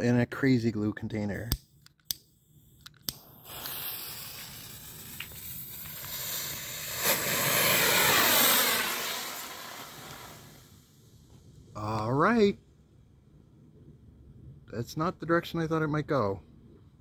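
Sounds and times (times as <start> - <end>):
torch lighter clicks: 1.5 - 3.8
rocket motor hissing: 2.4 - 11.2
rocket roaring on liftoff: 3.4 - 10.7
sharp pop: 6.9 - 10.3.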